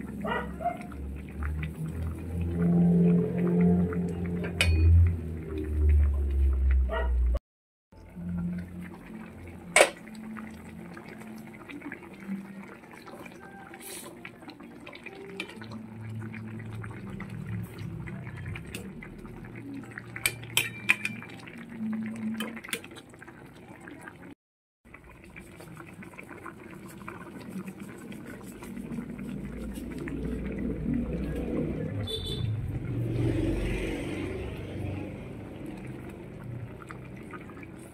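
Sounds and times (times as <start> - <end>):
soup bubbling in a pot: 0.0 - 7.4, 8.0 - 37.9
ladle clinking against pot: 20.2 - 21.4.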